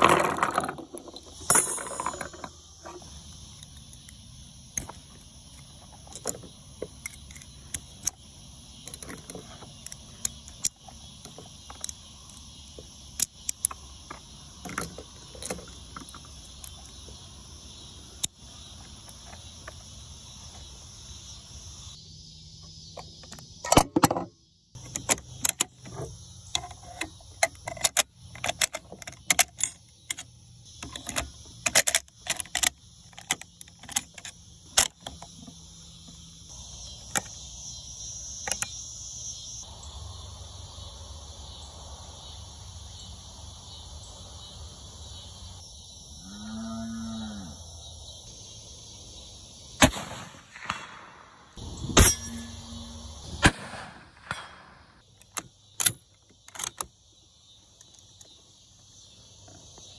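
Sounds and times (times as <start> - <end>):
cicadas buzzing: 0.0 - 59.9
cow mooing: 46.2 - 47.6.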